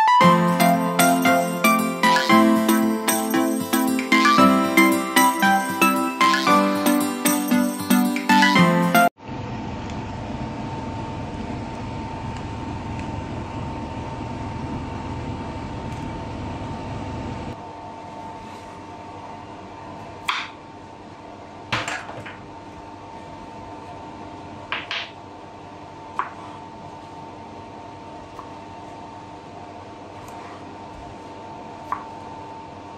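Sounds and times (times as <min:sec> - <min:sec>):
steady background hum: 0:09.9 - 0:32.9.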